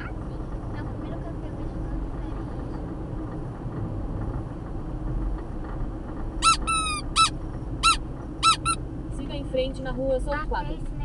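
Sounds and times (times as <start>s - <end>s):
squeaky clown nose squeaks: 6.4s - 8.8s.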